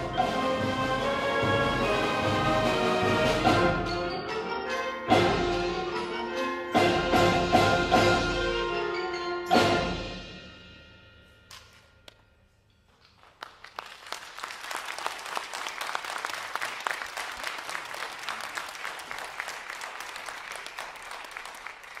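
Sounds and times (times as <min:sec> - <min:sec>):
audience applauding: 0:13.1 - 0:22.0.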